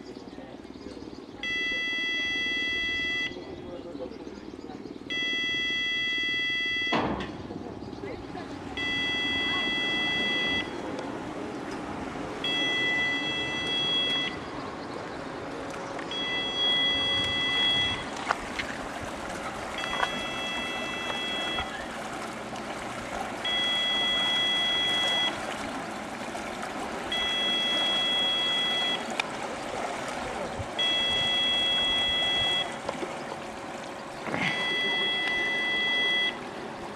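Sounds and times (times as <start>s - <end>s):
water churning and rushing: 0.0s - 36.9s
warning buzzer long beeps: 1.4s - 3.4s, 5.1s - 7.0s, 8.8s - 10.8s, 12.4s - 14.4s, 16.1s - 18.0s, 19.8s - 21.8s, 23.4s - 25.4s, 27.1s - 29.1s, 30.8s - 32.8s, 34.4s - 36.4s.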